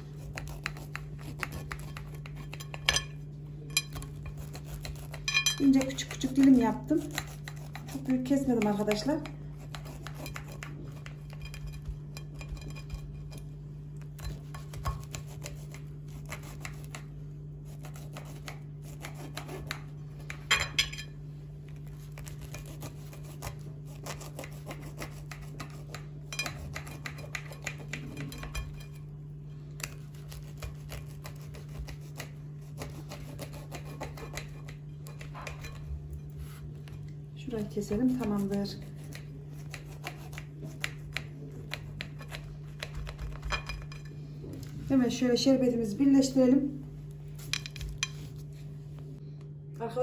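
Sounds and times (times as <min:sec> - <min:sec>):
steady low hum: 0:00.0 - 0:50.0
knife clinking on glass: 0:05.3 - 0:05.7.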